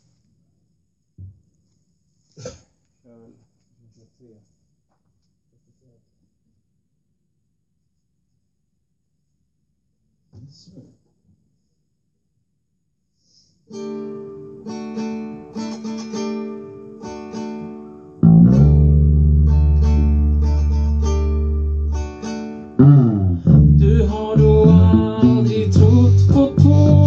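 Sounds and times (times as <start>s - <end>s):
acoustic guitar strummed: 13.7s - 27.0s
person singing: 22.8s - 27.0s.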